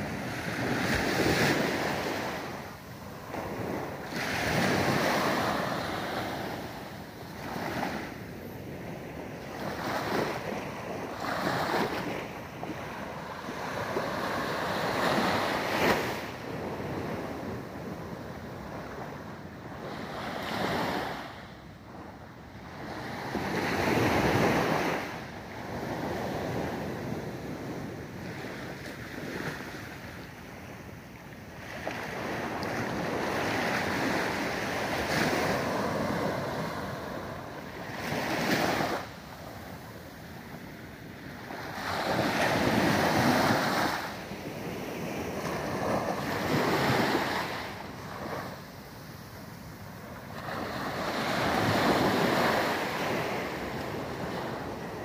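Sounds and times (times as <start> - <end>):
small waves washing onto sand: 0.0 - 55.0.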